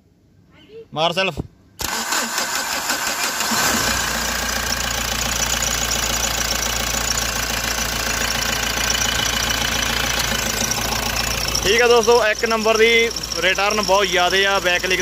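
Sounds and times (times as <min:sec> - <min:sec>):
diesel engine starting and idling: 0:01.8 - 0:15.0.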